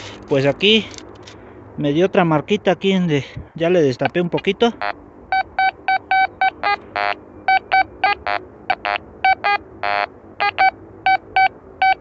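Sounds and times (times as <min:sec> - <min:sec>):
metal detector beeping: 0:04.8 - 0:12.0.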